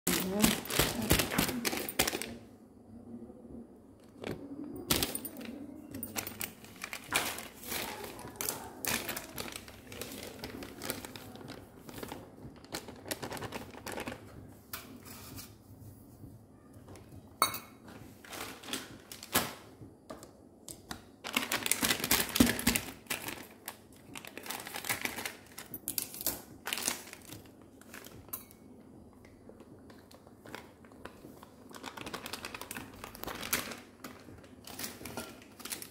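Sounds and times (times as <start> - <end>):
plastic packets crinkling: 0.1 - 2.4, 4.2 - 14.4, 18.2 - 19.7, 20.9 - 28.2, 30.4 - 35.9.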